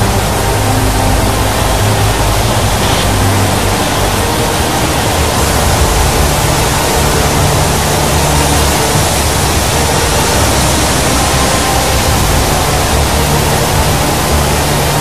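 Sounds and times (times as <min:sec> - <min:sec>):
floodwater rushing from dam gates: 0:00.0 - 0:15.0.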